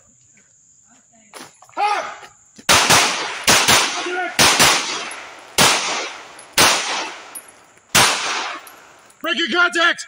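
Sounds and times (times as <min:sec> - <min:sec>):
man shouting: 0:01.8 - 0:02.3, 0:04.0 - 0:04.4, 0:09.2 - 0:10.0
pistol shots: 0:02.7 - 0:09.1.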